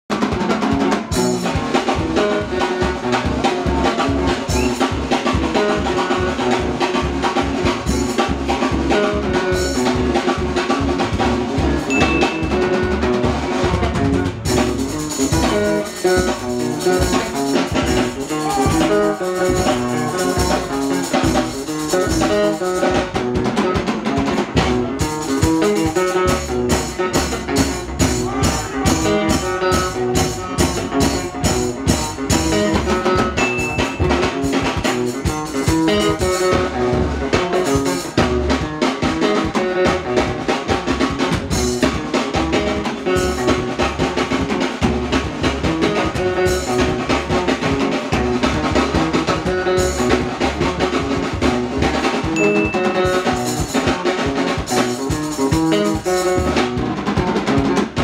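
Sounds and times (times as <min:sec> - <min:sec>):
bass: 0:00.0 - 0:58.0
drum kit driving beat: 0:00.0 - 0:58.0
electric guitar lines: 0:00.1 - 0:58.0.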